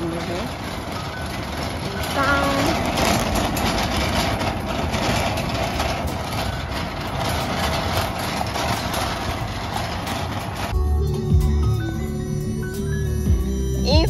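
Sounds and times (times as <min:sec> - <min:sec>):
shopping cart rattling on pavement: 0:00.0 - 0:10.8.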